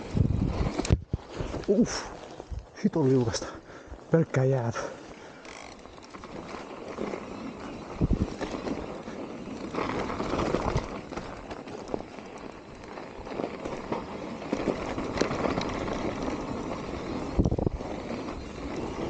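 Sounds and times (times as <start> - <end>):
bike tyres on ice and snow: 0.0 - 19.0
bike knocks and rattles: 5.4 - 19.0.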